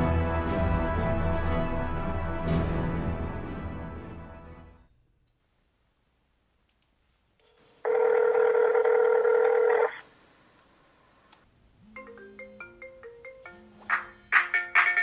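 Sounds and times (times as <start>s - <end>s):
mobile phone ringtone: 7.9s - 10.0s.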